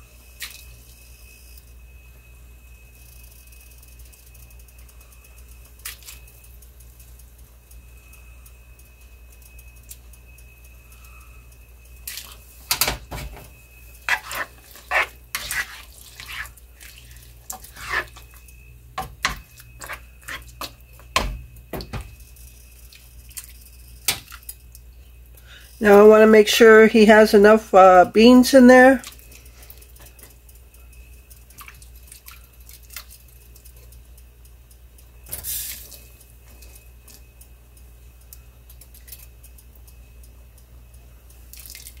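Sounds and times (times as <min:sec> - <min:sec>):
faint high whine: 0:00.0 - 0:42.0
broth pouring and splashing: 0:41.5 - 0:42.0.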